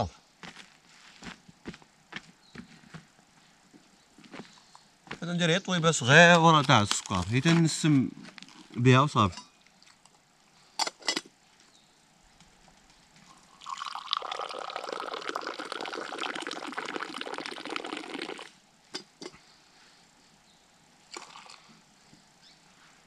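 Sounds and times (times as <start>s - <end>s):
tea pouring and splashing: 8.4s - 8.8s, 13.3s - 19.2s, 21.1s - 21.7s.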